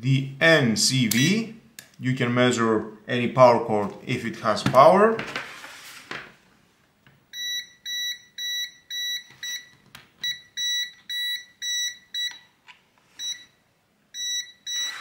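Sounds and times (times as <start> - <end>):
voltage detector beeping: 7.4 - 12.5, 13.2 - 13.6, 14.2 - 15.0.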